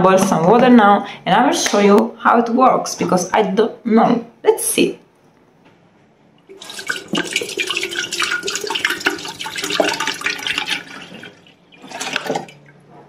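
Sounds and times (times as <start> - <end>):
water pouring into a kettle: 6.5 - 12.8.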